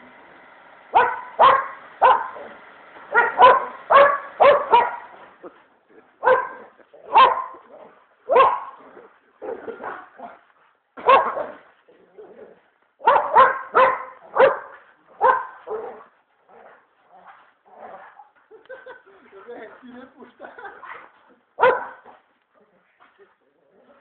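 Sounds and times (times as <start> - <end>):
dog barking: 1.0 - 2.5, 3.1 - 5.2, 6.2 - 7.7, 8.3 - 8.8, 11.0 - 11.6, 13.0 - 16.1, 21.6 - 22.2.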